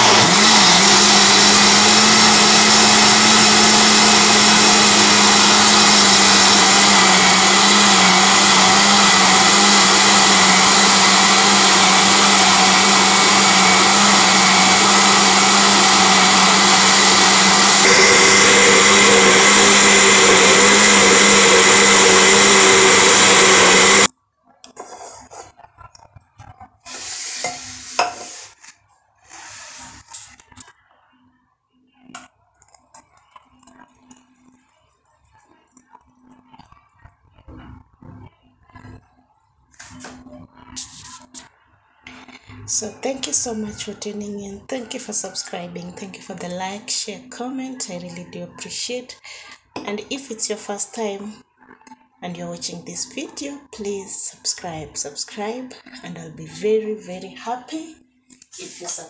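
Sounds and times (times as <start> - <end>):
blender motor running: 0.0 - 24.1.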